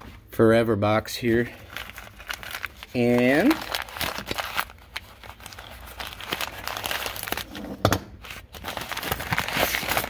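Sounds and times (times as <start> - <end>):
paper bag crinkling and rustling: 1.3 - 7.6, 8.2 - 10.0
sharp paper crack: 1.7 - 7.5, 8.2 - 10.0.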